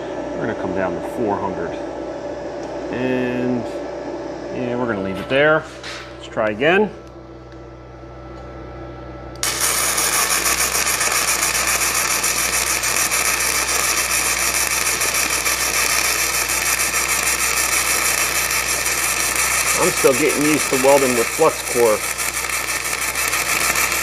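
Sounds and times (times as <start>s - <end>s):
welding arc crackling: 9.4s - 24.0s.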